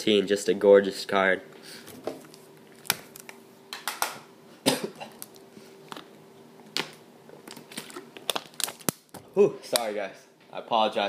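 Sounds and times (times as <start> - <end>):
man coughing: 4.6 - 5.2.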